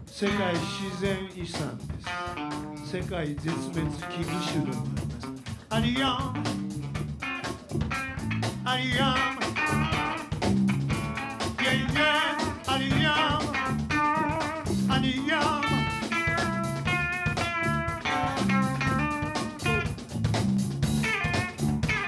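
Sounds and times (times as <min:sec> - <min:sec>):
bass guitar: 0:00.0 - 0:22.0
drum kit funk groove: 0:00.0 - 0:22.0
electric guitar solo: 0:01.9 - 0:02.8, 0:03.4 - 0:05.6, 0:07.2 - 0:20.2, 0:21.0 - 0:22.0.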